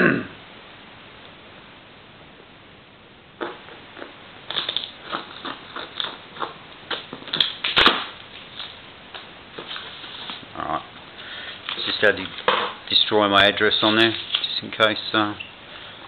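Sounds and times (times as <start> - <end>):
parcel crinkling and scratching: 3.4 - 10.5, 13.7 - 14.7.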